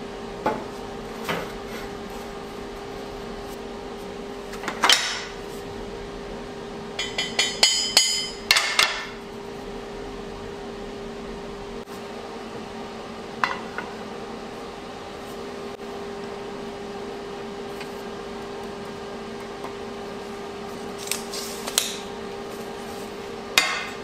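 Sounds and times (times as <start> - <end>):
steady hum: 0.0 - 24.0
steel clanking on welding table: 7.0 - 9.2.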